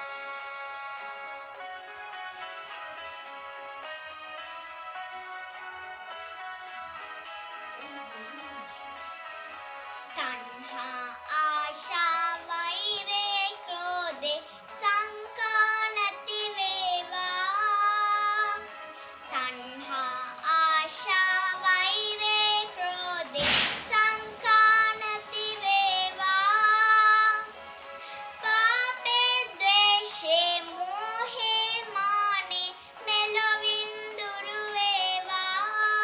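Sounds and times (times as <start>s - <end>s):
girl singing devotional song: 7.9s - 36.0s.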